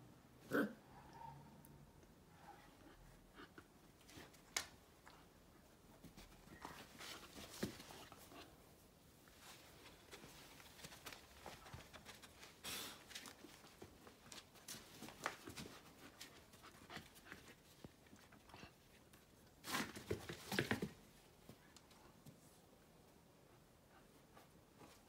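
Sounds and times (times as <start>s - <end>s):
dogs scuffling: 5.8s - 8.6s, 9.2s - 18.4s, 19.1s - 22.4s.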